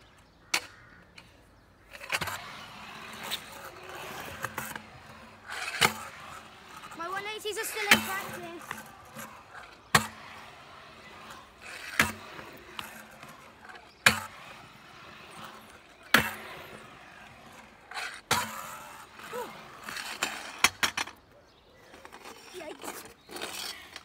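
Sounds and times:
scooter wheels rolling on concrete: 0.0s - 24.0s
scooter deck clacking on concrete: 3.0s - 21.2s.

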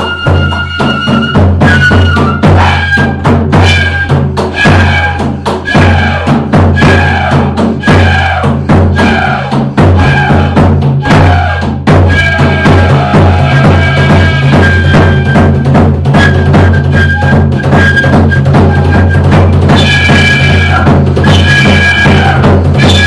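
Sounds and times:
fife melody: 0.0s - 5.9s, 13.5s - 23.0s
drum beat: 0.0s - 23.0s.

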